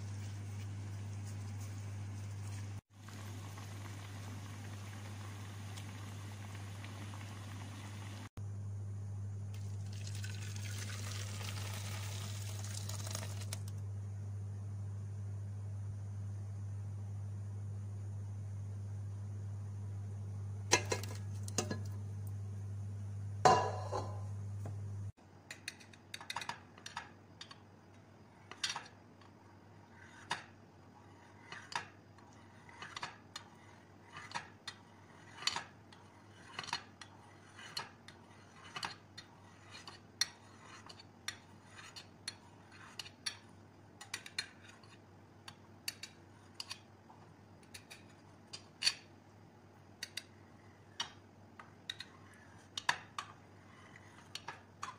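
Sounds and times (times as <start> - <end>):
steady low hum: 0.0 - 10.8, 13.5 - 25.2.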